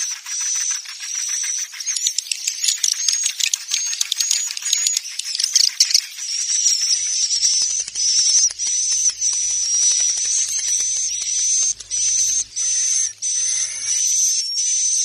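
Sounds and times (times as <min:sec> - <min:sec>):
swiftlets twittering: 0:00.0 - 0:14.4.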